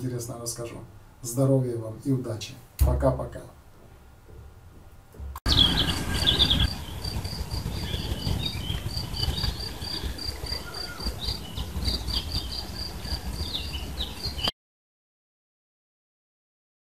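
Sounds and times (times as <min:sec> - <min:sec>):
low rumble: 0:05.2 - 0:14.4
birds chirping: 0:05.4 - 0:14.5
insect chirping in pulses: 0:05.5 - 0:14.3.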